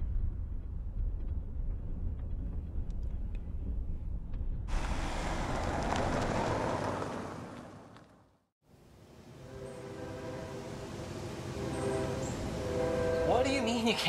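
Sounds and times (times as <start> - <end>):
loud rushing noise: 4.7 - 7.5.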